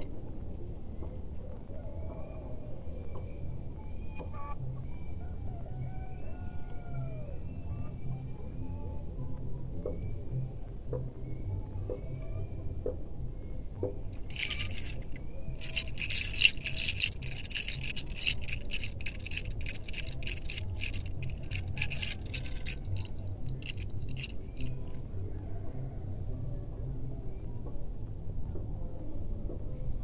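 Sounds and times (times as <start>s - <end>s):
hand rattle shaking: 14.2s - 24.9s.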